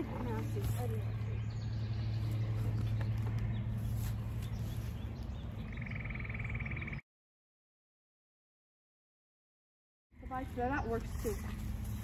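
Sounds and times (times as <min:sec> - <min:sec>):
steady low hum: 0:00.0 - 0:07.0.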